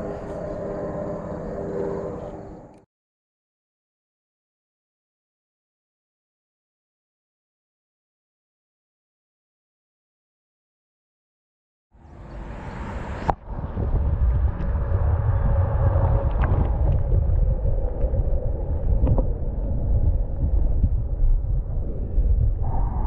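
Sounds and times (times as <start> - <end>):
wind buffeting microphone: 12.3 - 23.0.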